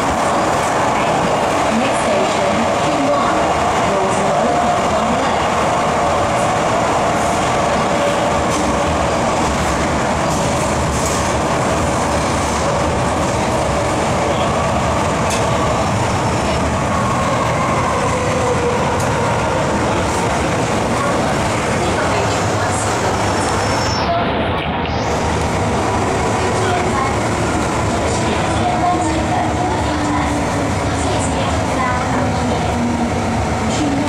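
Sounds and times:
train wheels rumbling on rail: 0.0 - 34.0.

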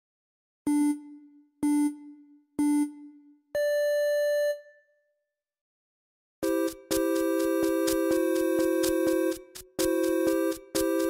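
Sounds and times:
electronic countdown beeps: 0.7 - 4.9, 6.4 - 11.0.

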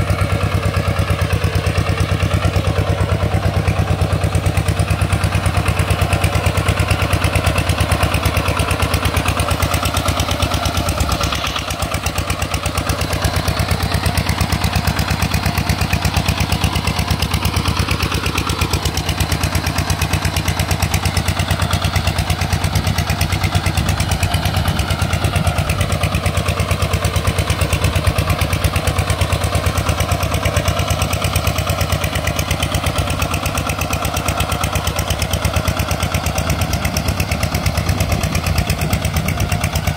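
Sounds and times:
diesel engine chugging: 0.0 - 39.9.

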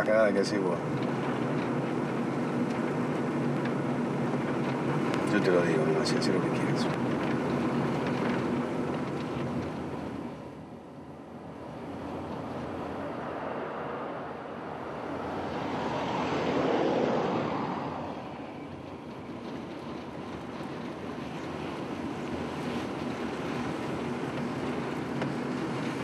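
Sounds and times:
car driving past: 11.4 - 19.2.

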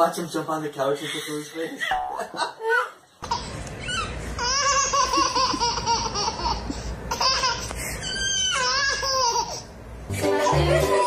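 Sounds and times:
baby laughing: 1.7 - 9.7.

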